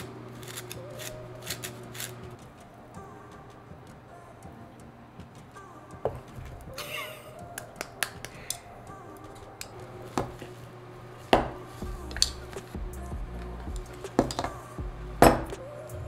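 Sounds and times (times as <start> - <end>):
utensils knocking on bowls: 13.8 - 14.5.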